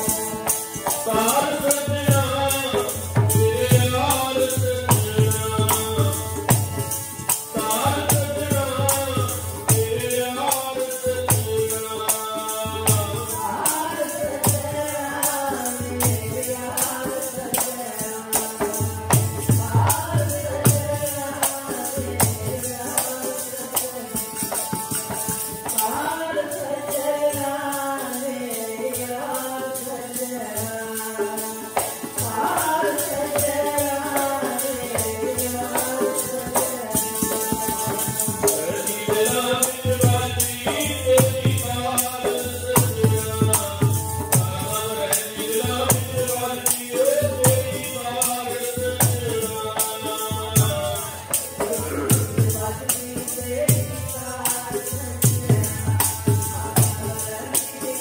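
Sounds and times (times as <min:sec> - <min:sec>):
fast steady percussion beat: 0:00.0 - 0:27.8, 0:28.5 - 0:58.0
harmonium tones: 0:00.0 - 0:58.0
tabla: 0:00.0 - 0:58.0.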